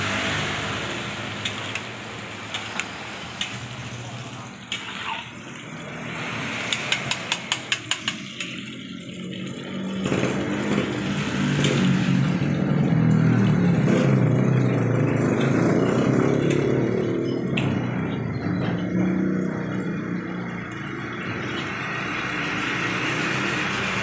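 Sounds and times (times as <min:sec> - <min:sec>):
oil sizzling in a wok: 0:00.0 - 0:12.3.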